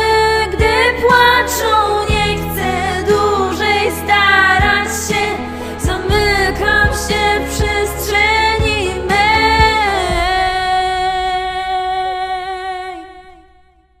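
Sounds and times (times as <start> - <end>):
woman singing wordless notes: 0.0 - 13.7
low beat: 5.8 - 13.0.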